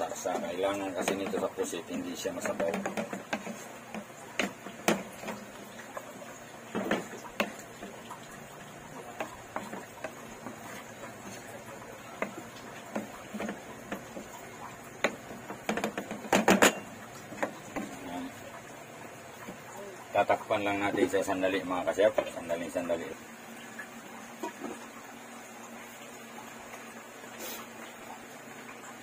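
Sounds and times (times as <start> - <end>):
low steady sizzle: 0.0 - 29.0
spatula knocking and scraping wok: 0.2 - 18.0.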